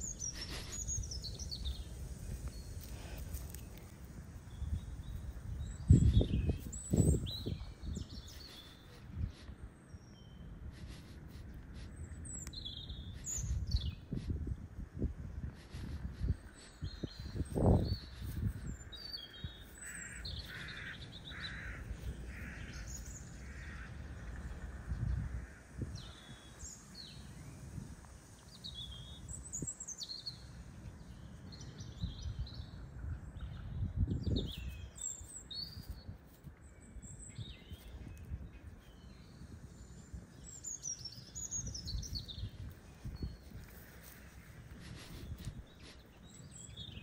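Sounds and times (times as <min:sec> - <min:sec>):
small birds chirping: 0:00.0 - 0:47.0
crow cawing: 0:19.8 - 0:24.1.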